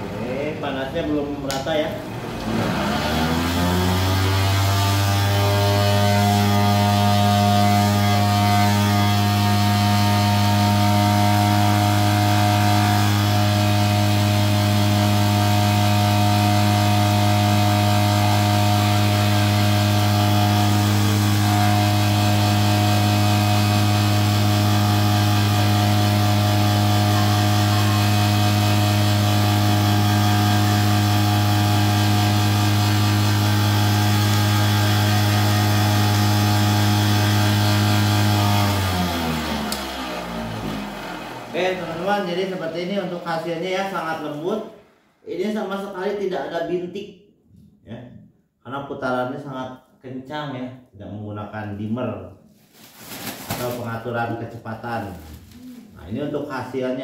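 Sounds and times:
cotton candy machine humming: 0:02.2 - 0:43.9.

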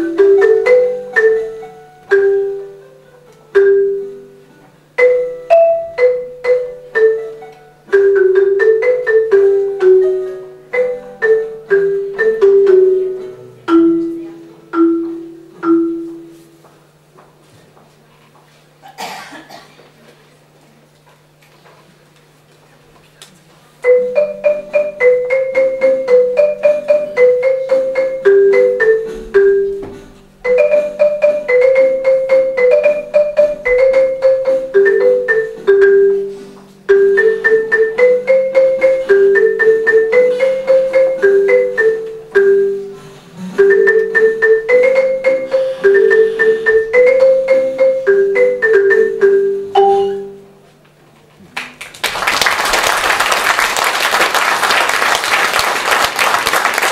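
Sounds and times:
marimba melody: 0:00.0 - 0:17.0, 0:23.8 - 0:50.8
applause: 0:51.6 - 0:56.9.

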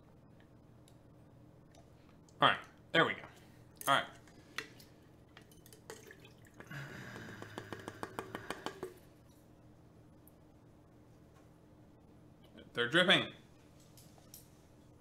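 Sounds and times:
fluid drips tapping: 0:04.5 - 0:09.0.

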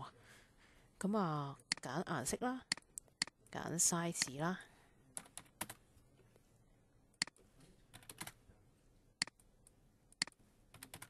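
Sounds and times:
keyboard and mouse clicks: 0:01.7 - 0:01.9, 0:02.7 - 0:03.4, 0:07.2 - 0:08.4, 0:09.2 - 0:09.5, 0:10.1 - 0:11.0.

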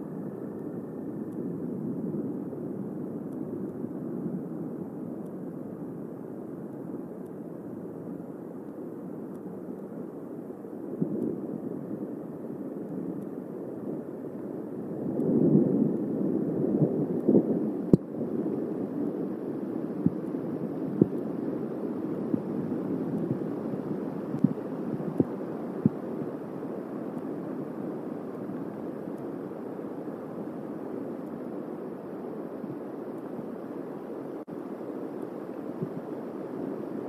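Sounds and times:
thunder rumbling: 0:13.8 - 0:29.0.

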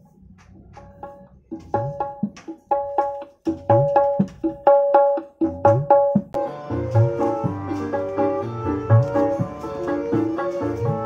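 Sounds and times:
hand drum strokes: 0:00.0 - 0:04.7, 0:05.6 - 0:11.0
sustained melody: 0:06.4 - 0:11.0.

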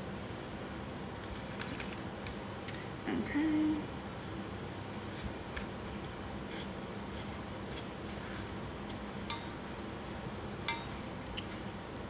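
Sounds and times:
low room noise: 0:00.0 - 0:12.0.

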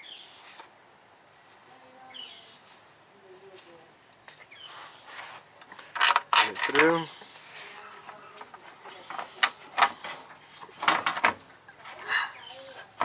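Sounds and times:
metal bolt scraping: 0:05.8 - 0:07.0.

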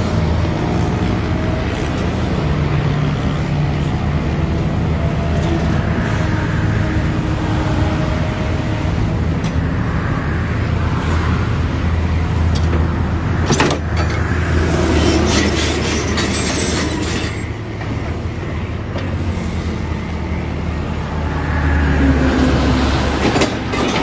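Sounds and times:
excavator diesel engine running: 0:00.0 - 0:24.0.

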